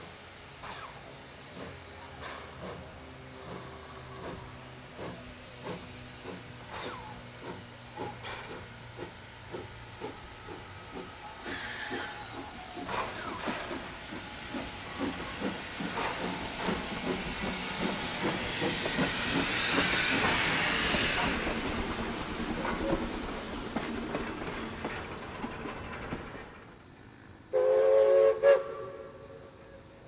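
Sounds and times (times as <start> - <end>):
steam hissing: 0.0 - 29.6
steam locomotive chuffing: 0.0 - 29.6.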